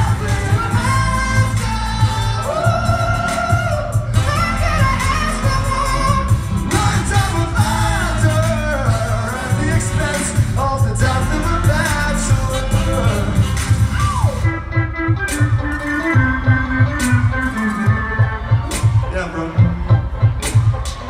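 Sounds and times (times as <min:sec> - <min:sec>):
man singing long notes: 0:00.0 - 0:14.6
live pop-rock band playing: 0:00.0 - 0:21.0.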